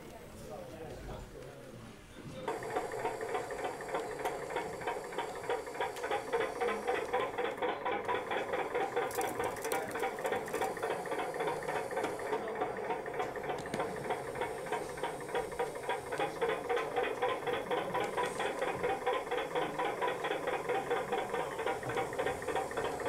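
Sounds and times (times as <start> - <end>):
model crane mechanism chattering: 2.5 - 23.0.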